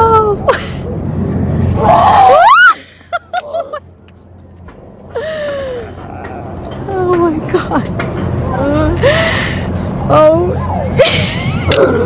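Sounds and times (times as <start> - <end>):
woman screaming: 1.8 - 2.8.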